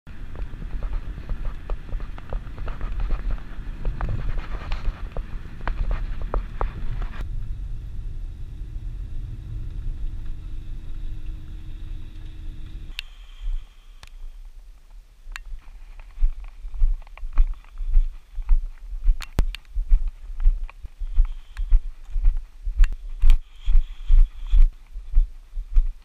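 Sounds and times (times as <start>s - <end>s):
car cabin road rumble: 0.1s - 13.0s
sharp ticks and knocks: 19.2s - 19.7s, 22.8s - 23.4s.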